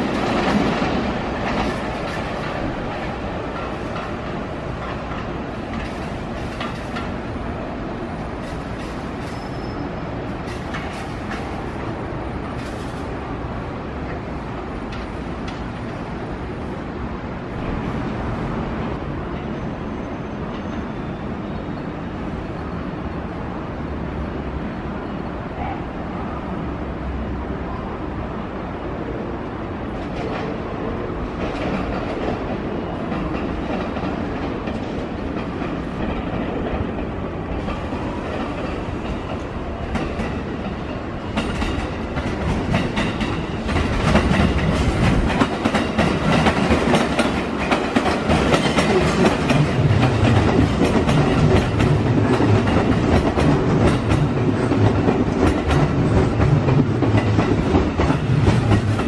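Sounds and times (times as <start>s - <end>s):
wheels clacking on rail joints: 0.0s - 7.4s, 8.2s - 13.2s, 31.4s - 59.0s
electric train running past: 0.0s - 59.0s.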